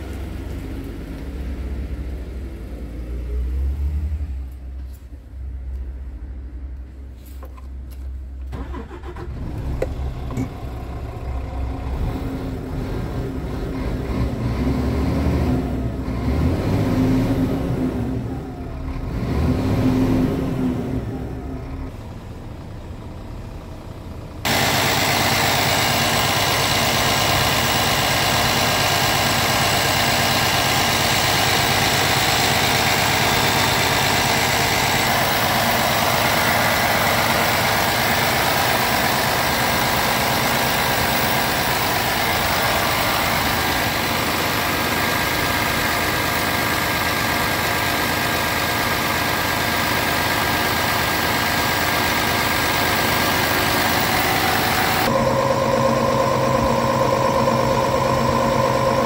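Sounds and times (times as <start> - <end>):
diesel truck engine idling: 8.5 - 14.6, 20.8 - 59.0.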